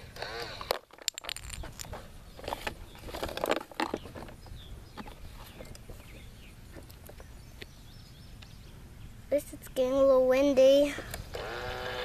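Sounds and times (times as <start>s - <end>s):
small trash clattering and rustling: 0.6s - 7.2s.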